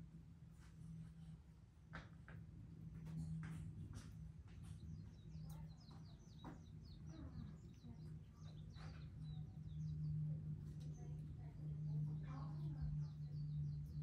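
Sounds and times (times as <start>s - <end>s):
steady low hum: 0.0s - 14.0s
small birds chirping: 3.0s - 14.0s.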